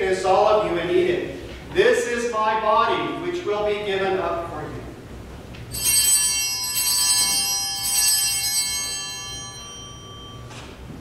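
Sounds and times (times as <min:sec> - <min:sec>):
small altar bells ringing: 0:05.7 - 0:11.0.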